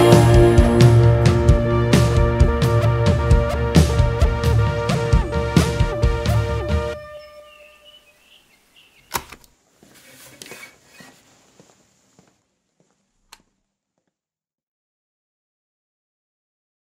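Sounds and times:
song ringing out: 0:00.0 - 0:07.8
faint high chirps: 0:06.9 - 0:09.2
sharp click: 0:09.1 - 0:09.5.

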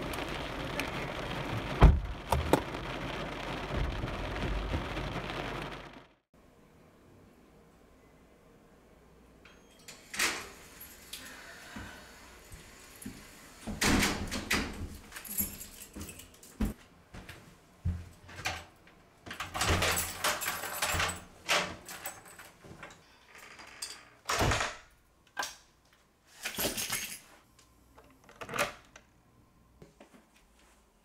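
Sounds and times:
footsteps: 0:00.0 - 0:06.0, 0:15.8 - 0:18.4
door opening and closing: 0:01.3 - 0:05.8, 0:23.3 - 0:24.9
keys jangling: 0:15.1 - 0:16.6.

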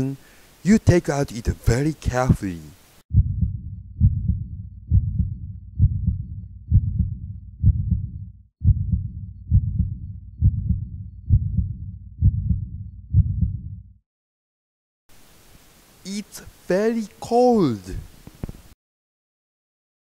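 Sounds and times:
heartbeat thumps: 0:03.1 - 0:14.0.

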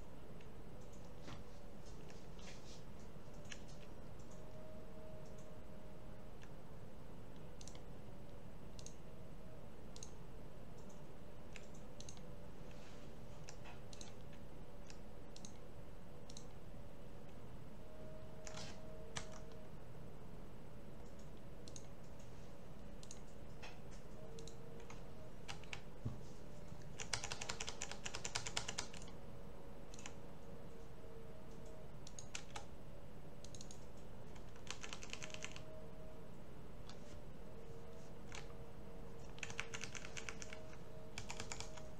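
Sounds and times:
faint steady hum: 0:00.0 - 0:41.9
keyboard typing: 0:00.4 - 0:05.6, 0:07.3 - 0:09.1, 0:09.9 - 0:10.2, 0:10.8 - 0:12.8, 0:13.4 - 0:16.6, 0:18.3 - 0:19.6, 0:21.0 - 0:29.2, 0:29.8 - 0:32.7, 0:33.4 - 0:36.2, 0:36.8 - 0:41.9
mouse clicks: 0:08.8 - 0:09.0, 0:13.5 - 0:15.6, 0:21.0 - 0:22.3.

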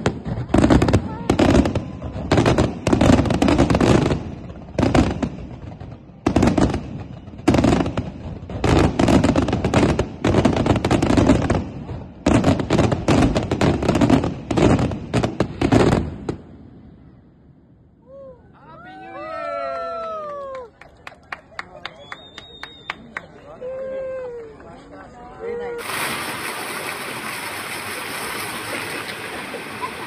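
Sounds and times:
fireworks bursting and crackling: 0:00.0 - 0:17.1, 0:25.8 - 0:30.0.

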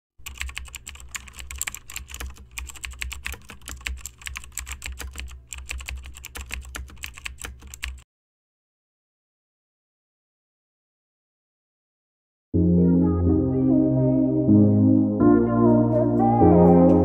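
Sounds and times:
computer keyboard typing: 0:00.2 - 0:08.0.

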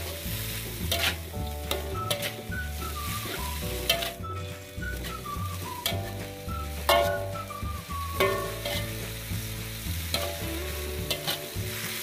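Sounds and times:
metal spatula scraping wok: 0:00.0 - 0:12.0
vegetables sizzling in a wok: 0:00.0 - 0:12.0
spatula clinking against pan: 0:03.9 - 0:04.2, 0:06.9 - 0:07.4, 0:08.2 - 0:08.9.

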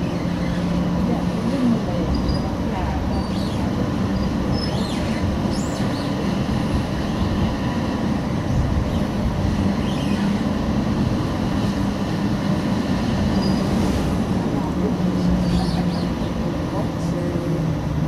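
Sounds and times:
low motor hum: 0:00.0 - 0:18.0
tram wheels rumbling on rails: 0:00.0 - 0:18.0.

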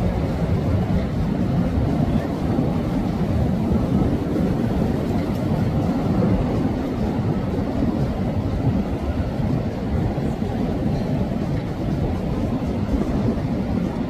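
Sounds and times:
boat engines rumbling: 0:00.0 - 0:14.0
boat wake churning: 0:00.0 - 0:14.0.

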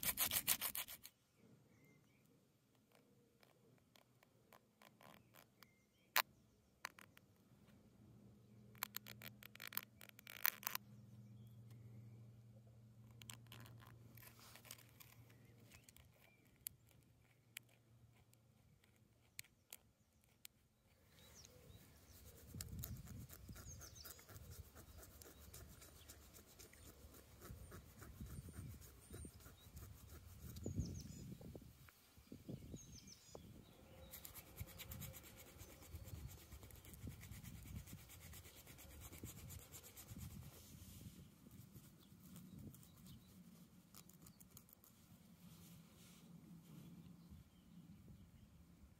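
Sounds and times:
bone scratching on stone: 0:00.0 - 0:01.1, 0:02.9 - 0:05.8, 0:06.8 - 0:07.2, 0:08.7 - 0:10.8, 0:13.1 - 0:20.7, 0:21.7 - 0:31.0, 0:34.0 - 0:40.4.

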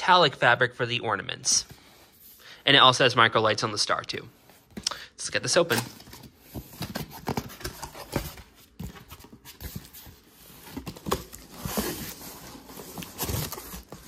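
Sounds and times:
cardboard flaps scraping rustle: 0:05.7 - 0:14.0.

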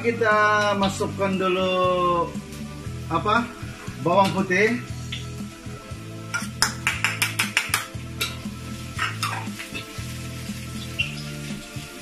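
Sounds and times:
metal ladle scraping a wok: 0:08.2 - 0:11.3.

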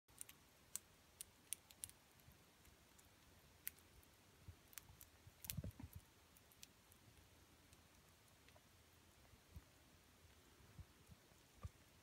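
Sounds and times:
small animal chewing crunchily: 0:00.1 - 0:08.7.

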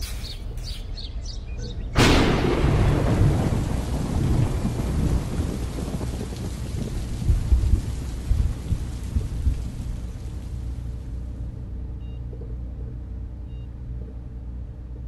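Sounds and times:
thunder rumbling: 0:01.7 - 0:11.4
steady rain: 0:02.0 - 0:11.9.

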